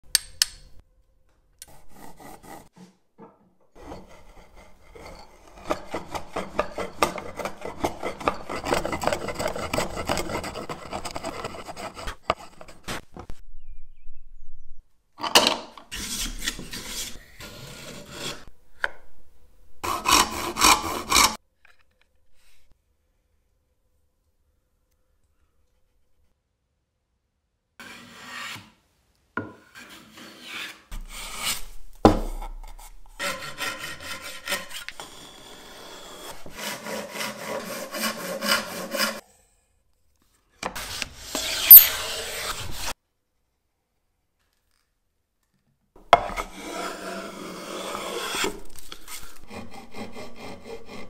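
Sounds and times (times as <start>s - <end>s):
grooving tool rasping on wood: 3.8s - 13.0s, 32.6s - 39.2s, 46.2s - 51.0s.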